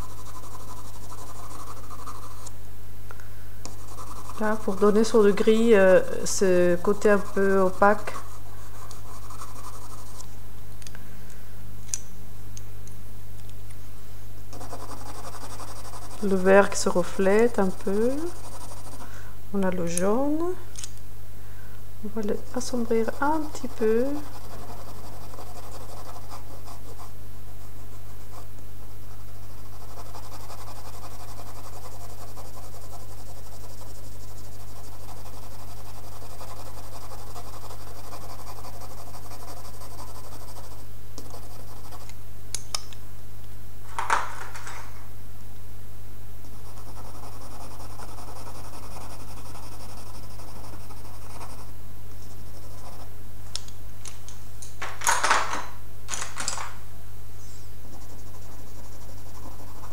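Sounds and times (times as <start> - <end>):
pencil scratching on paper: 0.0 - 2.5, 3.7 - 10.2, 14.5 - 19.1, 22.2 - 28.5, 29.1 - 42.1, 46.4 - 53.1, 57.8 - 59.9
steady low hum: 0.0 - 59.9.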